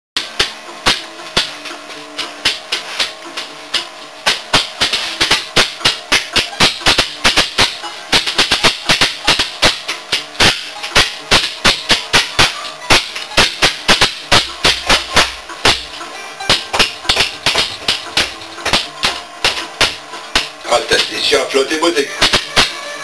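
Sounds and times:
hand clapper clacking: 16.5 - 21.2.

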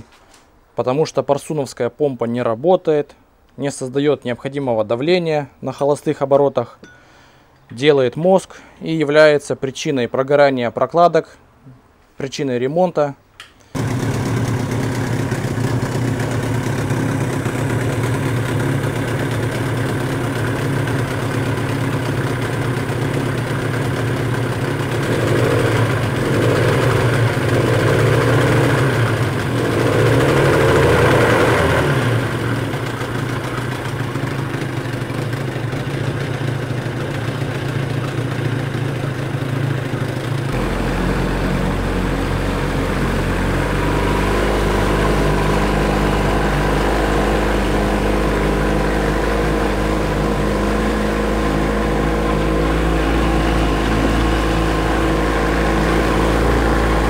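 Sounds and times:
outboard motor idling: 13.8 - 57.0.

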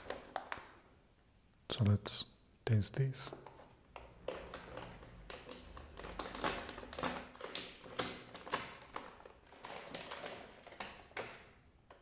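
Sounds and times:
plastic bag crinkling: 4.2 - 11.6.

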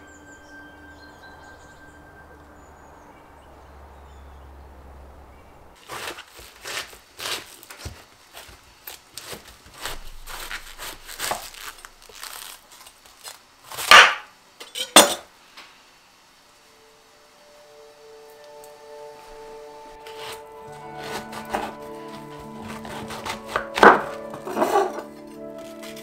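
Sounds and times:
faint background noise: 0.0 - 26.0
knife cutting cabbage: 5.8 - 14.2, 20.0 - 26.0.

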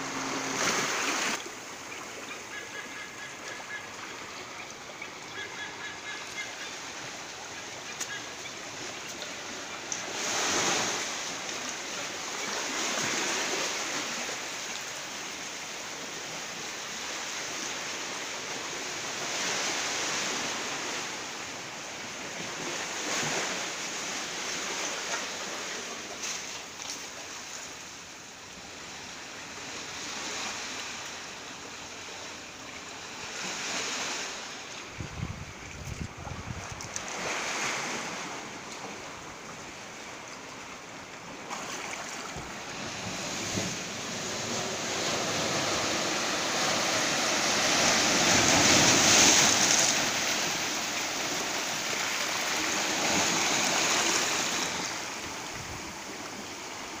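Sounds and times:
sea waves washing over rocks: 33.4 - 57.0
wind buffeting microphone: 34.9 - 37.0.

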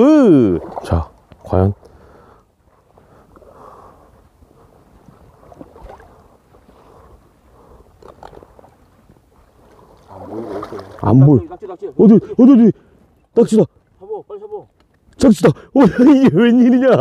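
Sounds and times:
small water splashes and drips: 0.0 - 2.0, 5.0 - 6.8, 7.9 - 11.9
seawater sloshing: 0.0 - 15.3.

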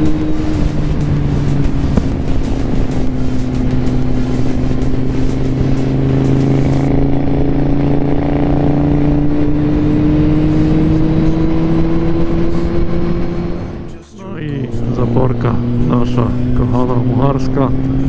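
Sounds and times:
wind noise: 0.0 - 14.0
motorcycle engine rising in pitch: 0.0 - 18.0.

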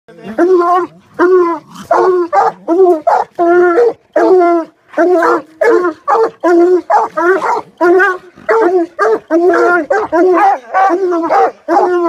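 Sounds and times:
dogs barking: 1.8 - 12.0.

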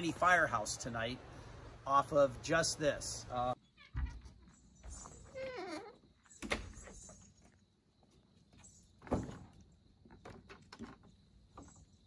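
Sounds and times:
door shutting with a thud: 3.9 - 4.3, 6.4 - 7.0, 9.0 - 9.5.

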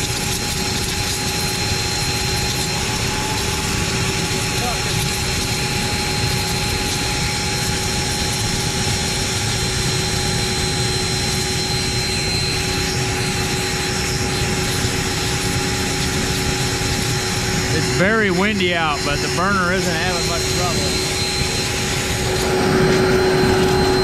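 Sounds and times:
steam hissing from nozzle: 0.0 - 24.0
burner roaring: 11.0 - 24.0.

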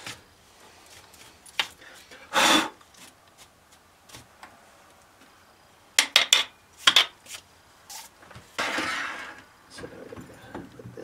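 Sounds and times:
brush scraping metal: 8.6 - 9.4.

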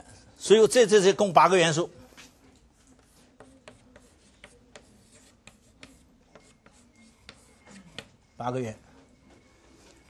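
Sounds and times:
chalk tapping on a blackboard: 2.2 - 8.2.

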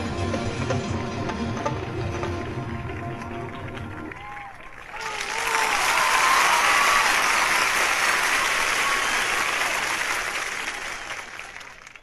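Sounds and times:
crowd applauding: 1.6 - 12.0.

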